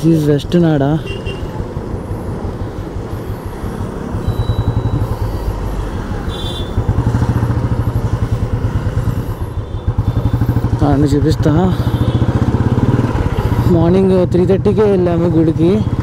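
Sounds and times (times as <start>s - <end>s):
motorcycle engine running: 1.1s - 16.0s.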